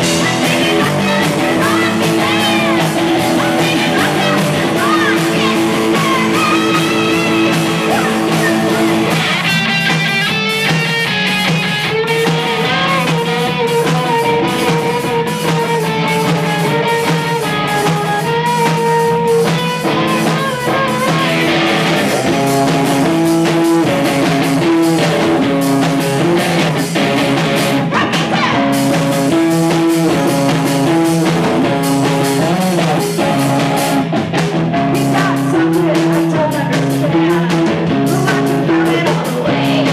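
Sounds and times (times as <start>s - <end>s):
woman singing: 0.0s - 9.4s, 12.0s - 19.0s, 19.9s - 21.7s, 27.9s - 29.0s, 34.8s - 39.9s
drum kit: 0.0s - 39.9s
electric guitars: 0.0s - 39.9s.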